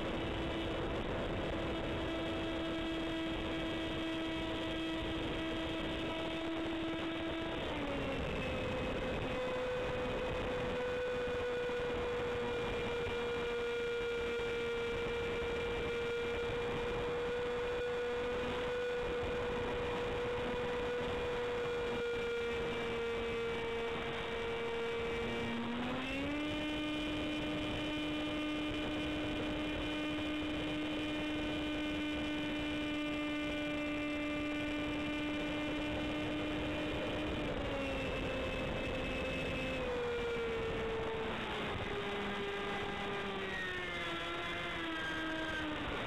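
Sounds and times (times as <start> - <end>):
electric motor and propeller whine: 0.0 - 46.0.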